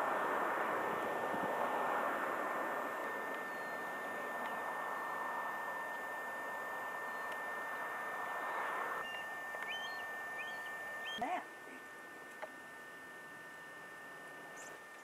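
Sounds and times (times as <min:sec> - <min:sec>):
rushing outdoor noise: 0:00.0 - 0:11.2
faint high whine: 0:00.0 - 0:15.0.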